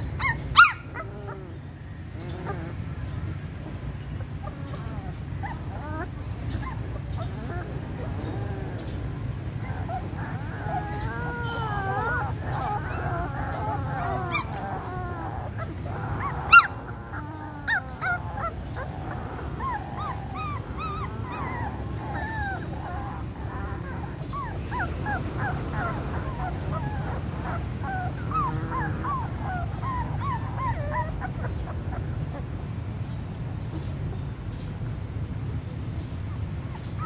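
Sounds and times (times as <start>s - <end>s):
puppy yelp: 0.0s - 1.5s, 4.3s - 8.8s, 9.6s - 32.5s
puppies whimpering and squeaking: 0.0s - 32.7s, 36.5s - 37.0s.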